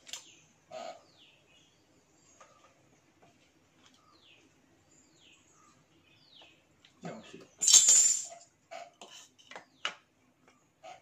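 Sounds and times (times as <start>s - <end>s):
faint bird chirps: 3.8s - 7.6s.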